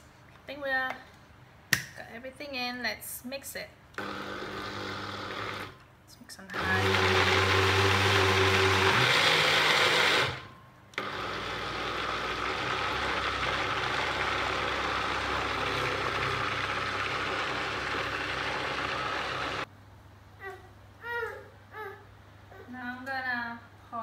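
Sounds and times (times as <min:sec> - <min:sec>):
blender running: 0:04.0 - 0:05.8, 0:06.6 - 0:19.7.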